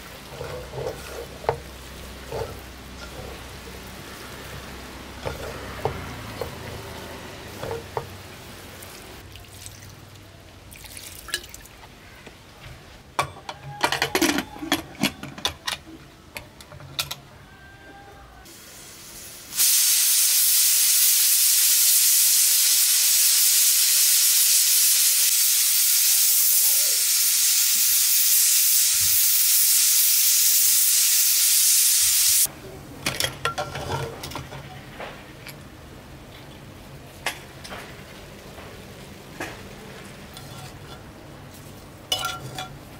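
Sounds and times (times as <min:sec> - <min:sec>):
wet squelching of hand mixing meat: 0:08.7 - 0:11.8
pressure cooker steam hiss: 0:18.5 - 0:32.5.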